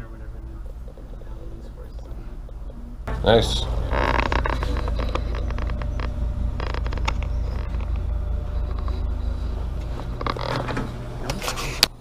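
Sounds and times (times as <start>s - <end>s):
low machine rumble: 0.0s - 12.0s.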